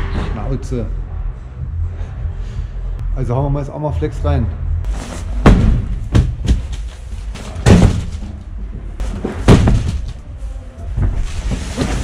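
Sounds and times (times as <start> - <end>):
box thumping on metal floor: 5.2 - 8.3, 9.0 - 10.2.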